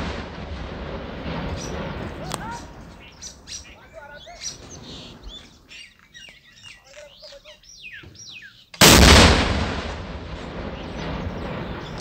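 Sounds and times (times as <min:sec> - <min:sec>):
loud explosion: 0:00.0 - 0:03.5, 0:08.8 - 0:12.0
small birds chirping: 0:01.4 - 0:08.8, 0:10.5 - 0:12.0.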